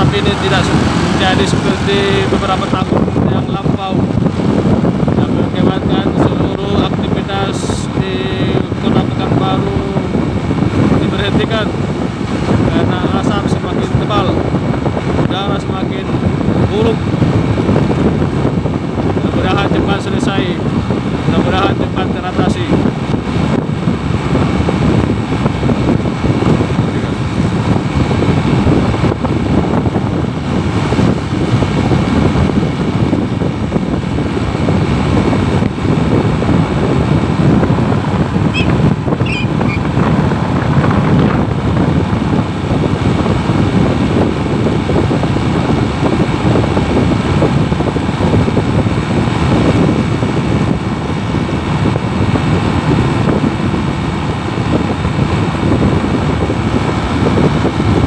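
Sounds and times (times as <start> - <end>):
vehicle driving rumble: 0.0 - 58.0
wind rushing over the microphone: 0.0 - 58.0
faint high chirps: 38.5 - 39.8.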